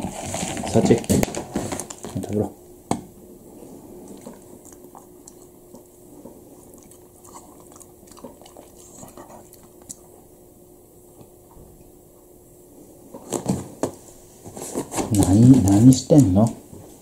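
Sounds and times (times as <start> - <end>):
dog crunching dry kibble: 0.0 - 2.5, 6.5 - 10.2, 15.1 - 16.6.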